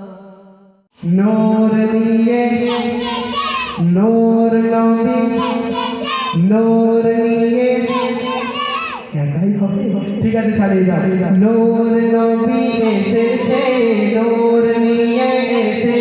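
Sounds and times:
man singing devotional song: 11.4s - 16.0s.

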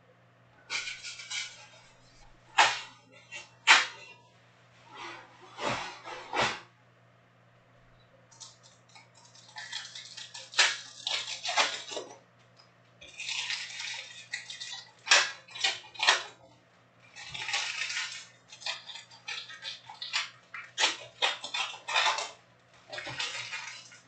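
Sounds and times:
card pack wrappers crinkling: 8.3s - 12.0s, 17.1s - 24.0s.

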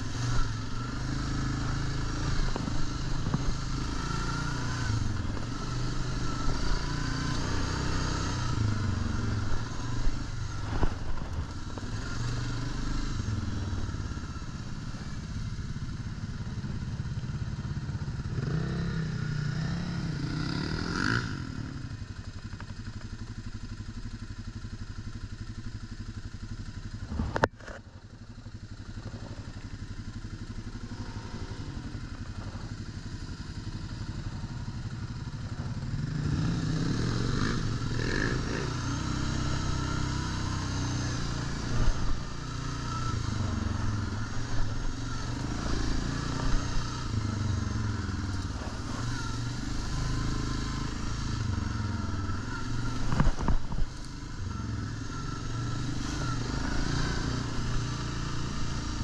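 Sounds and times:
atv engine running: 0.0s - 59.0s
clatter and knocks over bumps: 53.0s - 53.9s.

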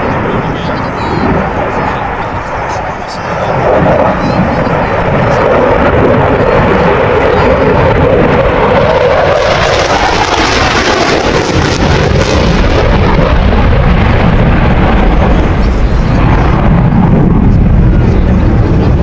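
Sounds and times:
jet afterburner roar: 0.0s - 19.0s.

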